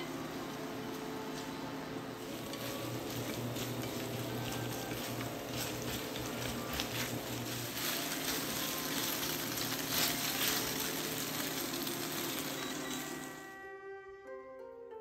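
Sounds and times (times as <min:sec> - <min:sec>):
chopsticks stirring: 0:00.4 - 0:13.5
chicken sizzling in a pan: 0:02.2 - 0:13.4.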